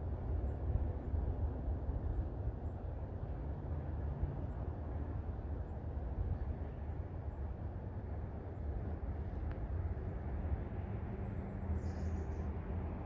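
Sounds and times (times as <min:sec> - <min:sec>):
low outdoor rumble: 0:00.0 - 0:13.0
faint high chirp: 0:11.2 - 0:12.5.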